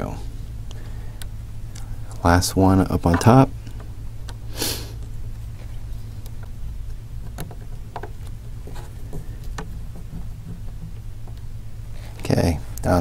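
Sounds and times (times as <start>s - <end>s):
steady low hum: 0.0s - 13.0s
short hiss: 4.5s - 5.0s.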